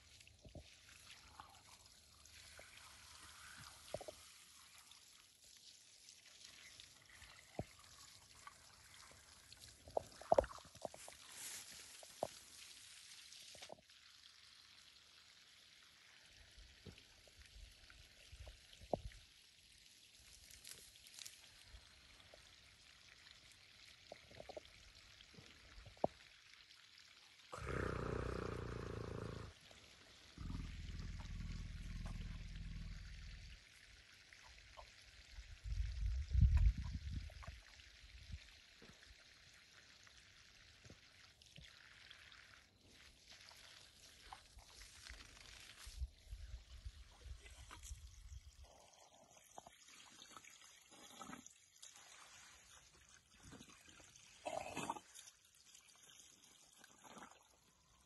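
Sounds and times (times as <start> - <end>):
elephant low breathy sounds: 27.6 - 29.6, 30.3 - 33.6.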